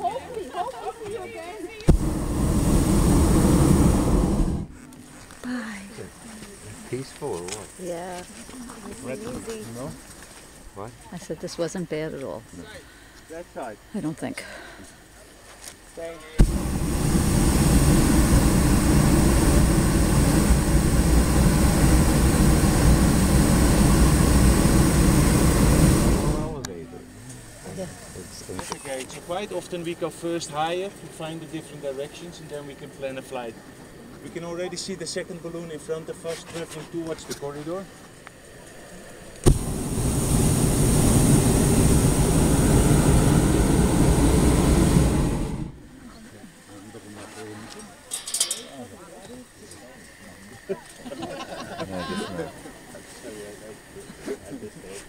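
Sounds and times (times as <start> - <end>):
propane burner firing: 1.8 - 8.2, 16.3 - 46.8.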